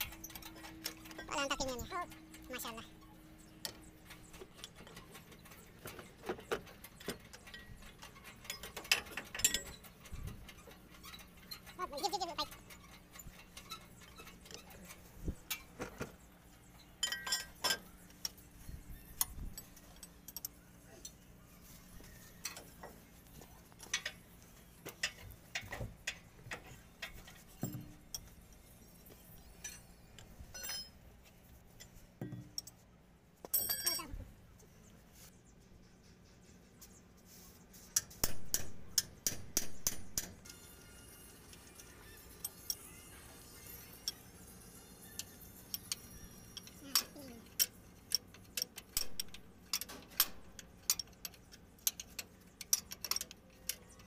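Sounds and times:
metallic clicks and clinks of wrench: 0:03.6 - 0:15.8, 0:17.0 - 0:18.4, 0:19.0 - 0:21.2, 0:33.4 - 0:34.2, 0:41.4 - 0:54.0.

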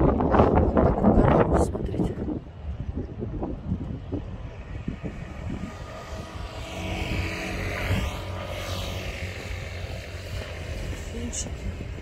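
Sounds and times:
wind rumbling on microphone: 0:00.0 - 0:12.0
engine passing by: 0:04.0 - 0:12.0.

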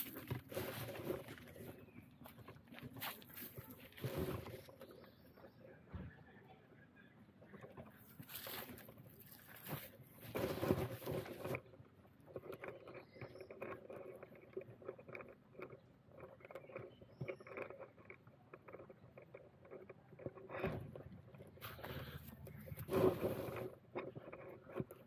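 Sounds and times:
rustling: 0:00.0 - 0:05.5, 0:07.6 - 0:11.6, 0:18.7 - 0:25.0
small clicks and scrapes: 0:00.0 - 0:05.7, 0:07.4 - 0:25.0.

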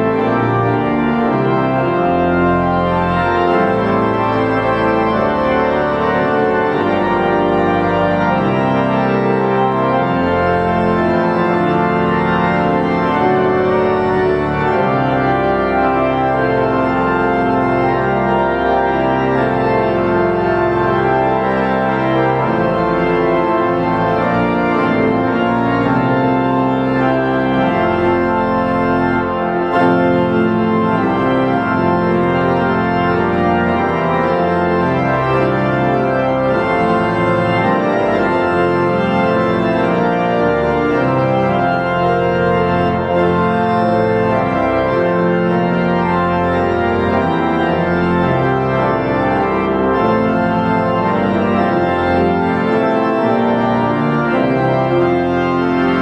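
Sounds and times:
pipe organ chords: 0:00.0 - 0:56.0.

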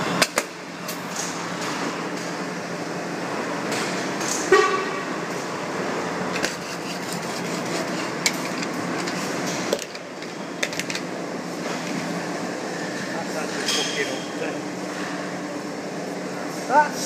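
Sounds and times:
truck horn toot: 0:04.5 - 0:05.1.

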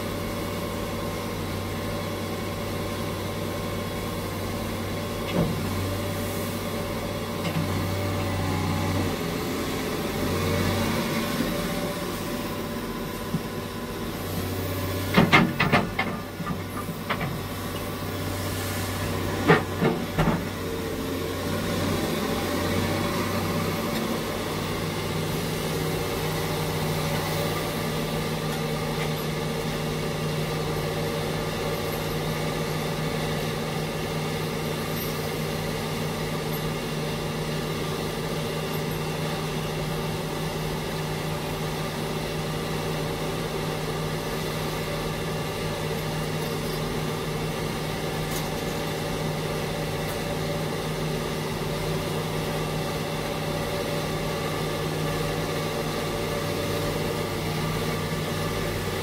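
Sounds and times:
diesel engine running steadily: 0:00.0 - 0:59.0.

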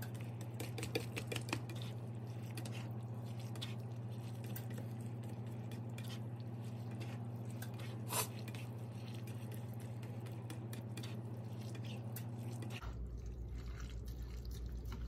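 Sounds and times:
steady low hum: 0:00.0 - 0:15.0
spatula stirring meat in sauce: 0:00.2 - 0:12.8.

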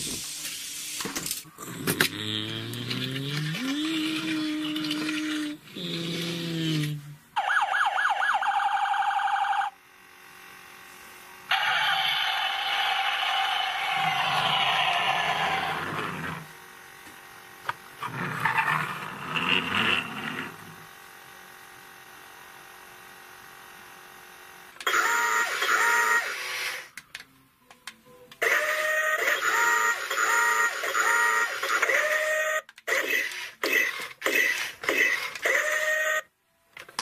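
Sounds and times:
toy electronic tones: 0:24.9 - 0:26.6, 0:28.4 - 0:34.0
toy robot electronic beeps: 0:28.5 - 0:36.2.

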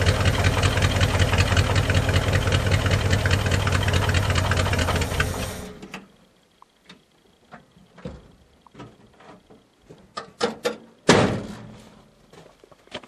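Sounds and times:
truck engine shutting off: 0:00.0 - 0:06.3
loud clunk: 0:10.4 - 0:11.8.

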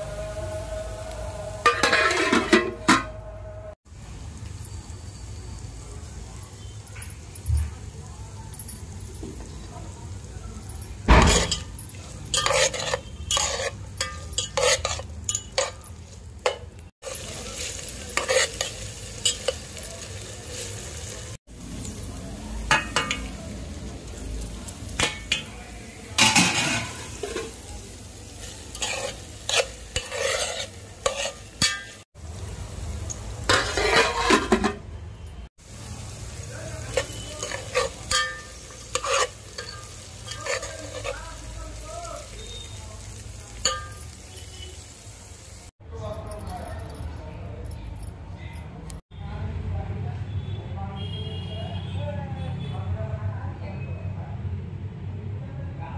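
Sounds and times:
metal spoon scraping pot: 0:01.6 - 0:03.2, 0:11.2 - 0:16.7, 0:18.1 - 0:19.6, 0:28.7 - 0:32.0, 0:33.5 - 0:34.9, 0:36.9 - 0:41.4
vegetables sizzling in oil: 0:03.9 - 0:08.0, 0:08.8 - 0:35.0, 0:35.6 - 0:45.8.

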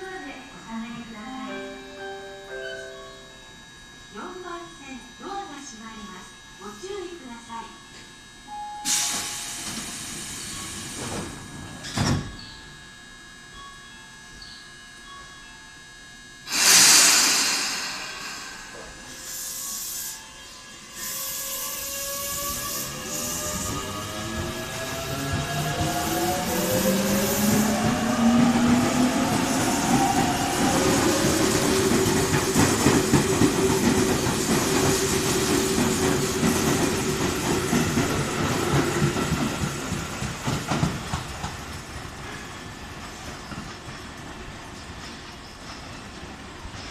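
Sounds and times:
train brakes hissing: 0:08.7 - 0:12.5, 0:16.4 - 0:41.5.

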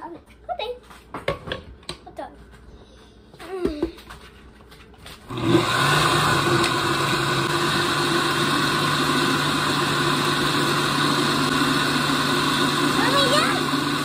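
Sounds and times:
blender motor running: 0:05.3 - 0:14.0.

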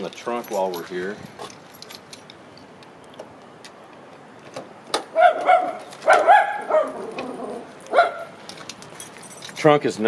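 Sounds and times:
dog barking: 0:05.1 - 0:07.2, 0:07.9 - 0:08.3.

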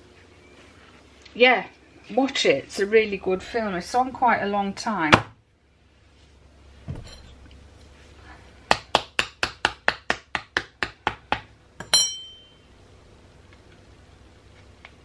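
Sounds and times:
spoon put down with metallic ring: 0:11.8 - 0:12.6.

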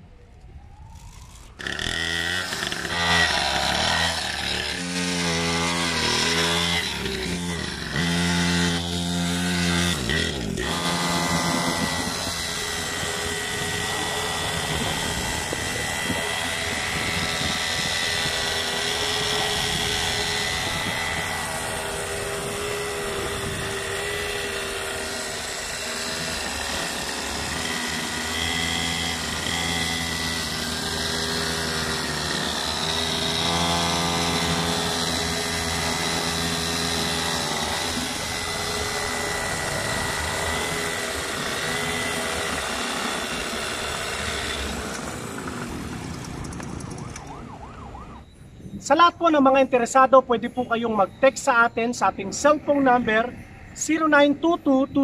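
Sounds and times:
two-stroke engines running: 0:00.7 - 0:48.2.

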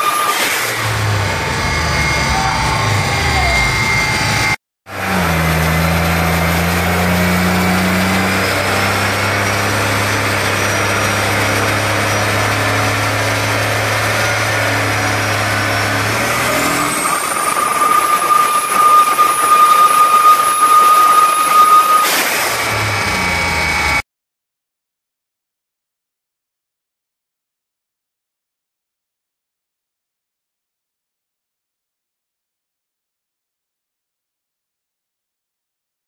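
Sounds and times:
high turbo whine: 0:00.0 - 0:24.0
car engine running hard: 0:00.4 - 0:21.6.

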